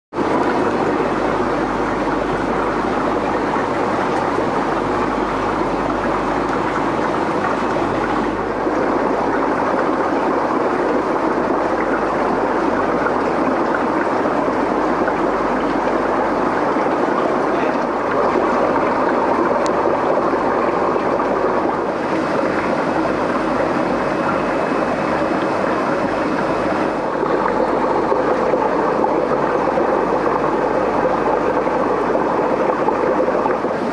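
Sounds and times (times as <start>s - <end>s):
aquarium water rushing and bubbling: 0.1s - 33.9s.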